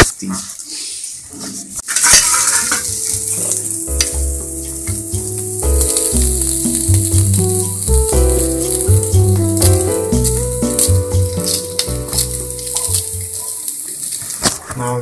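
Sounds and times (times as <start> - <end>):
food sizzling in oil: 1.8 - 14.5
background music with bass: 2.8 - 13.4.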